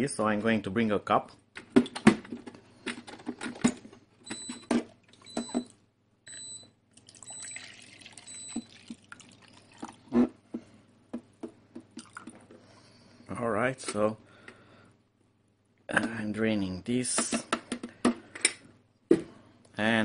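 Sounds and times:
water pouring into plastic jug: 6.9 - 10.1, 12.0 - 12.4.

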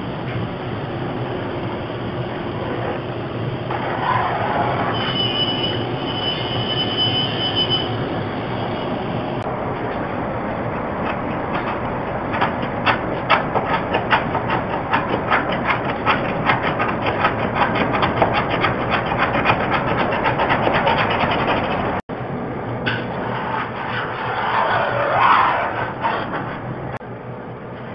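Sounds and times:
scraper rasping paint off wood: 11.0 - 22.0.

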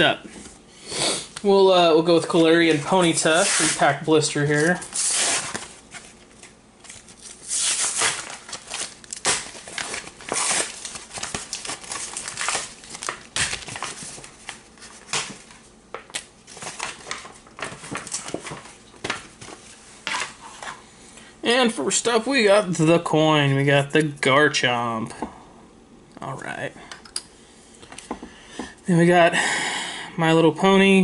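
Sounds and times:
plastic packaging crinkling and tearing: 3.0 - 20.4.

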